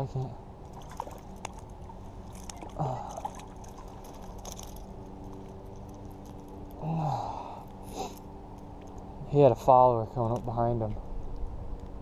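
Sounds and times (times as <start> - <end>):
water splashing and trickling: 0.6 - 9.5
fish thrashing at water surface: 0.7 - 4.9.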